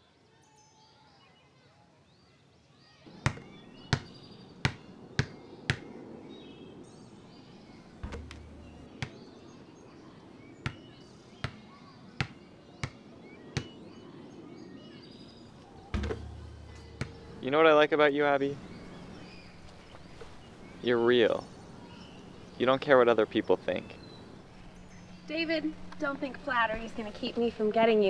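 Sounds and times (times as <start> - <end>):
basketball bouncing on pavement: 3.1 - 5.9, 8.0 - 9.2, 10.6 - 13.0, 13.6 - 13.8, 15.9 - 17.4.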